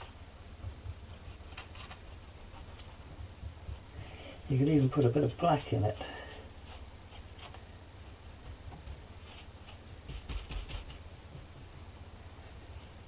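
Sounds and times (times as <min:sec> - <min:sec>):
faint steady hum: 0:00.0 - 0:13.0
paintbrush strokes on board: 0:04.4 - 0:08.2, 0:08.8 - 0:10.8.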